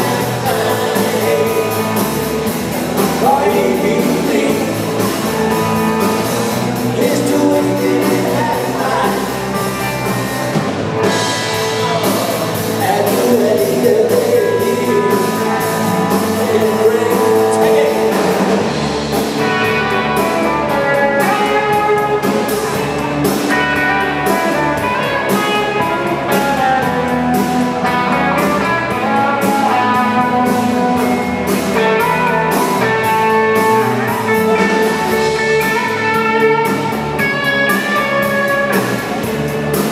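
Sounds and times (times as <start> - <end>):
person singing: 0.0 - 2.2, 2.9 - 5.8, 6.8 - 10.0, 11.5 - 18.6
drum kit: 0.0 - 39.9
electric guitars: 0.0 - 39.9.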